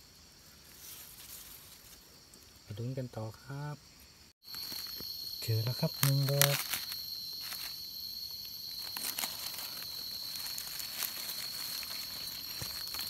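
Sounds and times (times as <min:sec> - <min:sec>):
dry leaves rustling and crackling: 0:00.7 - 0:02.0, 0:04.4 - 0:13.0
high-pitched insect drone: 0:04.4 - 0:13.0.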